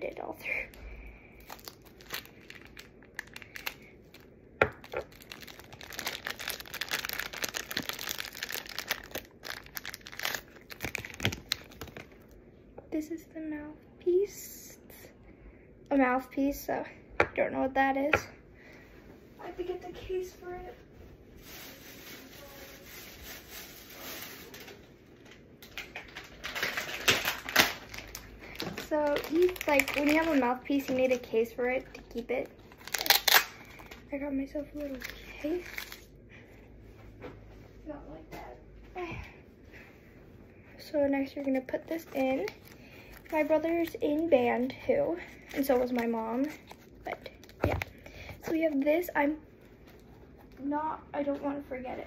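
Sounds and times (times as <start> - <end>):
plastic bag crinkling: 1.4 - 12.4, 21.4 - 34.1, 34.8 - 36.1, 41.2 - 50.5
steady room hiss: 17.4 - 37.0
faint rustling and handling: 18.8 - 25.0, 36.8 - 51.4.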